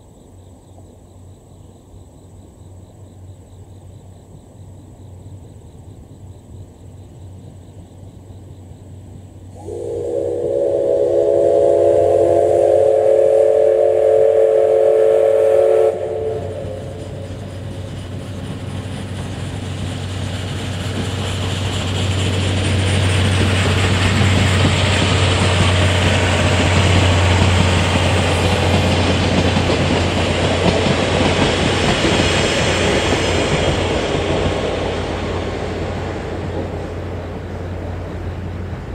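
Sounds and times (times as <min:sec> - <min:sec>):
train wheels on rails: 0:02.8 - 0:38.9
steam locomotive whistle blast: 0:09.6 - 0:17.6.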